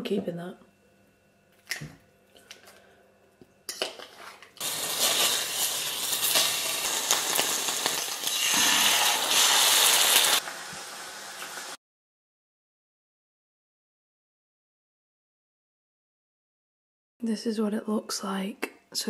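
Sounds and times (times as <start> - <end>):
frying pan sizzling: 4.6 - 11.8.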